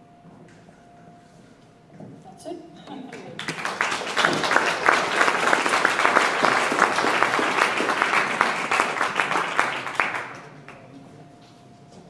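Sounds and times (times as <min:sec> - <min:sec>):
audience applauding: 0:03.1 - 0:11.0.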